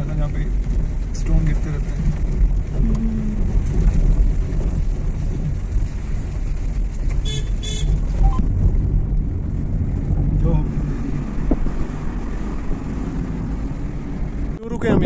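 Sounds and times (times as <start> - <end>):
car engine and road noise: 0.0 - 15.0
short high-pitched beeps: 8.2 - 8.4.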